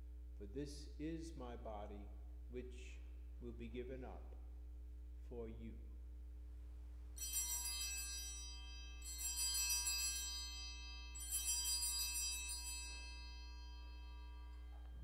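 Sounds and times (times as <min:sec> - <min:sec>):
small altar bells ringing: 0:07.1 - 0:15.0.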